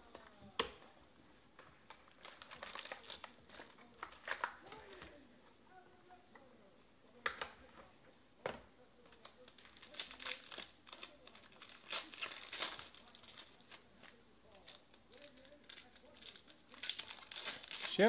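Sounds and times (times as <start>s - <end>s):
foil wrappers crinkling and tearing: 1.9s - 5.1s, 9.1s - 18.0s.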